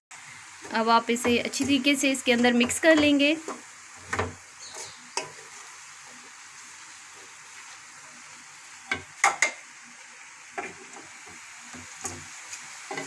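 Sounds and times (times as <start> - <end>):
vegetables sizzling in wok: 0.1 - 13.0
spatula scraping and knocking pan: 0.6 - 5.7, 10.6 - 13.0.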